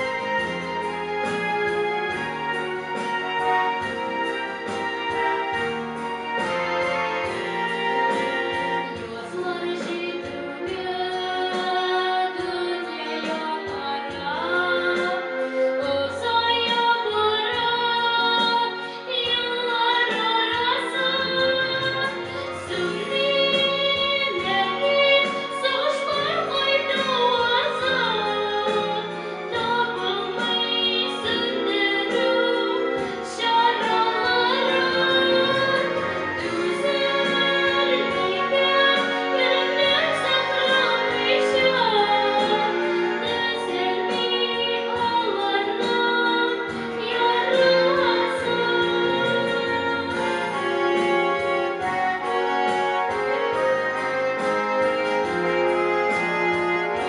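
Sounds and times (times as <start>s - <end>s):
instrumental accompaniment: 0.0s - 57.0s
girl singing into a microphone: 8.8s - 51.6s.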